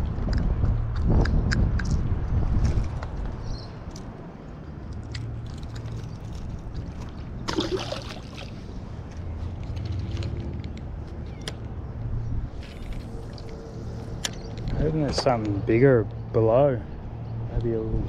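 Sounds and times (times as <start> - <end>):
steady low rumble: 0.0 - 7.5, 8.4 - 18.0
fish splashing into water: 7.4 - 8.6.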